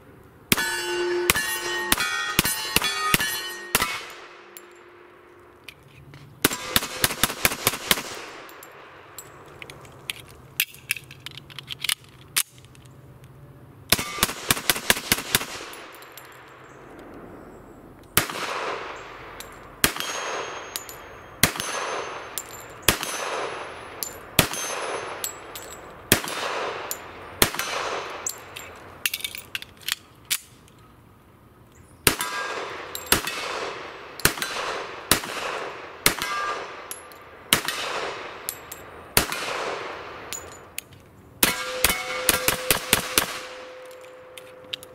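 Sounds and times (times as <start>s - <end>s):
pistol shots: 0.5s - 4.6s, 6.4s - 9.0s, 13.9s - 17.0s, 18.2s - 25.3s, 26.1s - 28.4s, 32.0s - 40.6s, 41.4s - 44.7s
metallic ring from steel targets: 0.5s - 5.4s, 19.3s - 25.9s, 36.2s - 37.8s, 40.2s - 44.9s.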